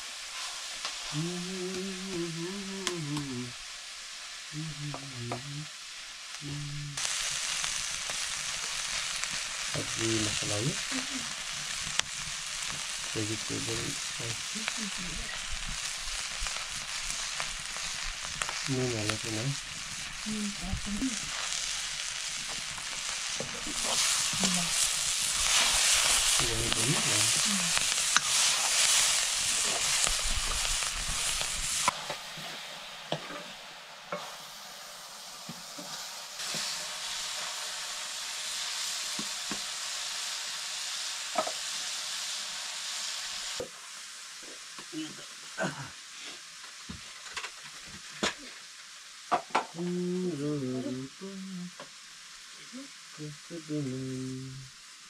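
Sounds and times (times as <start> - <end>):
cabbage sizzling in a wok: 0.0 - 55.0
stirring in a wok: 21.2 - 34.8.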